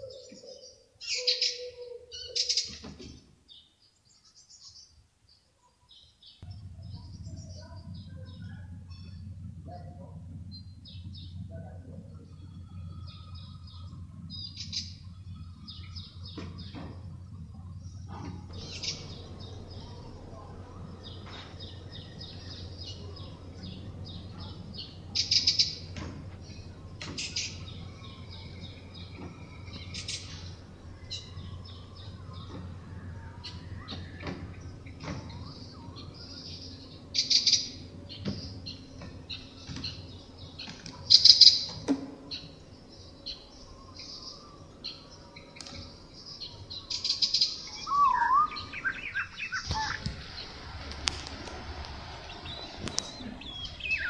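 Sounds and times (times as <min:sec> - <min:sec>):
small songbirds chirping: 0:00.0 - 0:54.0
faint low hum: 0:02.0 - 0:54.0
low sliding bird call: 0:43.4 - 0:54.0.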